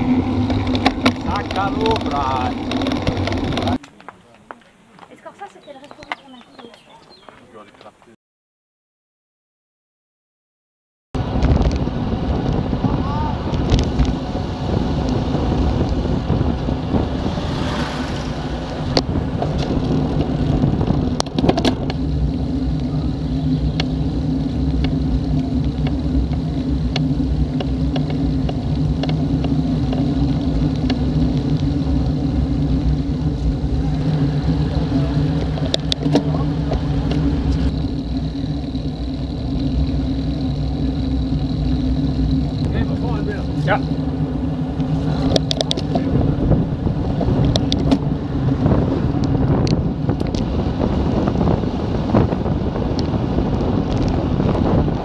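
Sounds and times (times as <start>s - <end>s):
wind rushing over microphone: 0.0s - 3.8s, 11.2s - 55.0s
tyre rumble on asphalt: 11.2s - 55.0s.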